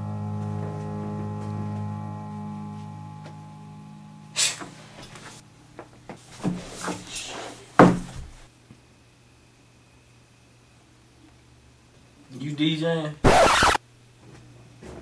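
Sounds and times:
held musical chord: 0.0s - 5.6s
sharp knocks and bumps: 7.8s - 8.4s.

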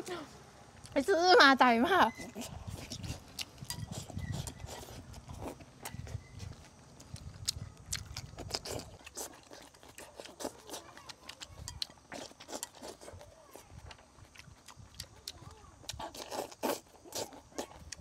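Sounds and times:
person chewing and smacking: 2.3s - 18.0s.

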